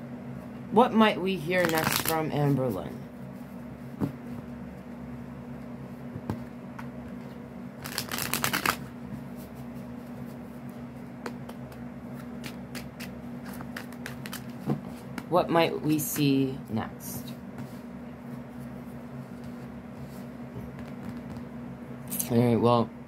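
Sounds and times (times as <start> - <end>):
cards tapping and flicking: 1.6 - 2.2, 7.8 - 8.9, 11.2 - 15.3.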